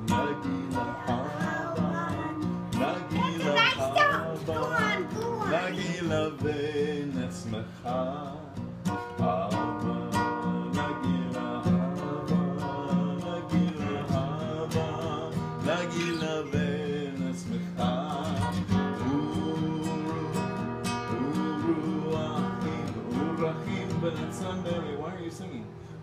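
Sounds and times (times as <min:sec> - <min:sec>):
person singing: 0:00.0 - 0:24.7
acoustic guitar strumming: 0:00.0 - 0:26.0.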